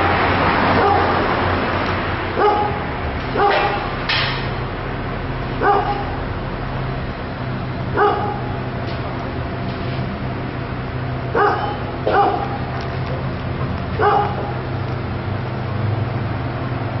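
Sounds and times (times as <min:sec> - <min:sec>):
dog barking: 0:00.8 - 0:01.3, 0:02.4 - 0:04.0, 0:05.6 - 0:06.2, 0:07.9 - 0:08.6, 0:11.3 - 0:12.7, 0:14.0 - 0:14.7.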